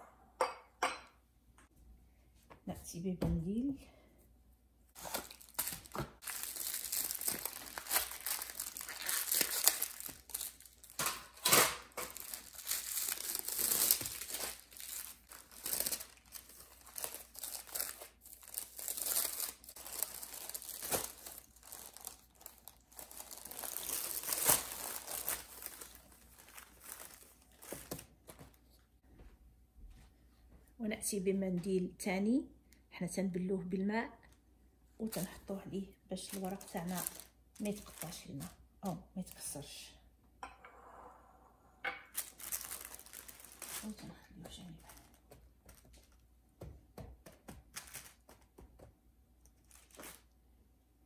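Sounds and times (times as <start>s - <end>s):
pastry sheets crinkling: 4.9s - 28.8s, 35.0s - 39.6s, 42.1s - 46.2s, 47.2s - 50.4s.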